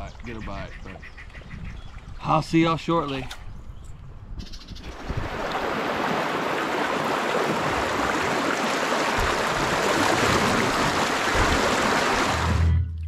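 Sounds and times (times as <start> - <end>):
river water rushing over rocks: 5.0 - 12.6.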